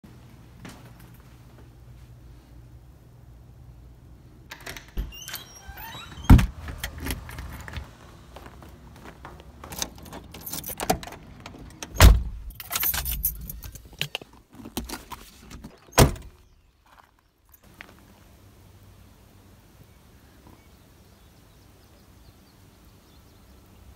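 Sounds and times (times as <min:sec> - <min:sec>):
heavy door thumps: 0:04.5 - 0:07.9, 0:11.9 - 0:12.5
car door opening and shutting: 0:04.5 - 0:08.3, 0:09.6 - 0:14.0, 0:14.7 - 0:16.4
keys jangling: 0:09.6 - 0:14.1.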